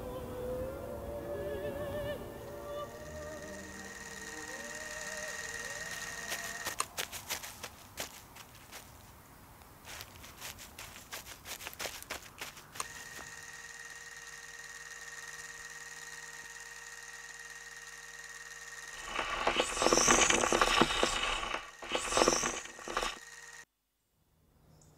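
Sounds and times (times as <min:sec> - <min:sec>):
steady hum: 0:00.0 - 0:06.8, 0:12.1 - 0:23.6
mechanical whirring: 0:02.5 - 0:06.8, 0:12.8 - 0:23.6
footsteps crunching on dry leaves: 0:05.9 - 0:13.3, 0:19.0 - 0:23.2.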